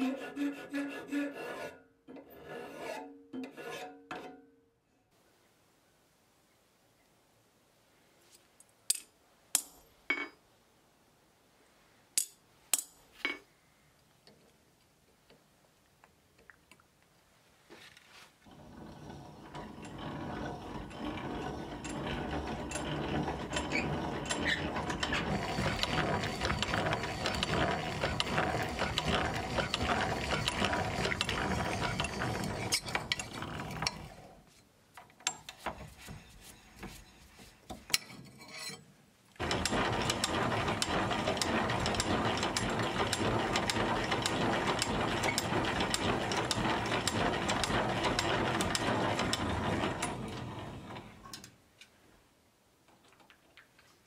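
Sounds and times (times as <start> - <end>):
hand-cranked drill clicking: 18.8 - 34.2, 39.4 - 50.6.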